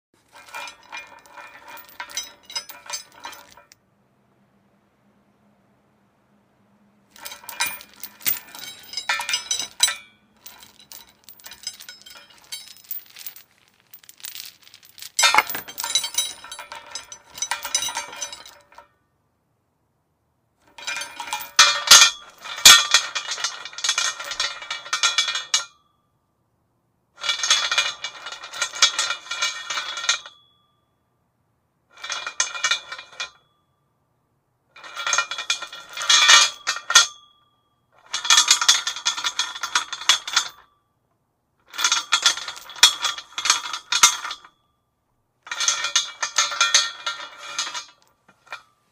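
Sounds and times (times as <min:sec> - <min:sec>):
metal chain rattling against post: 0:00.3 - 0:03.8, 0:07.2 - 0:18.8, 0:20.7 - 0:25.7, 0:41.7 - 0:44.6, 0:45.5 - 0:48.7
faint metallic ring: 0:25.5 - 0:26.4, 0:30.2 - 0:31.2, 0:32.9 - 0:34.1, 0:35.5 - 0:38.7, 0:41.8 - 0:48.9.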